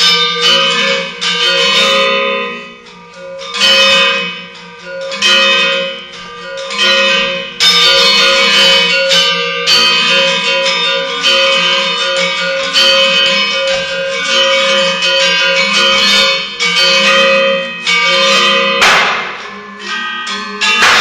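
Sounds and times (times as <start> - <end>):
gamelan metallophones playing: 4.7 - 21.0
noisy metallic clash: 18.2 - 20.0, 20.6 - 21.0.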